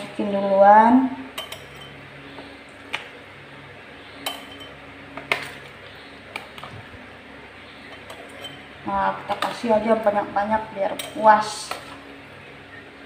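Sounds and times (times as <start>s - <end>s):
spoon clinking against glass: 4.2s - 4.8s, 7.9s - 8.6s.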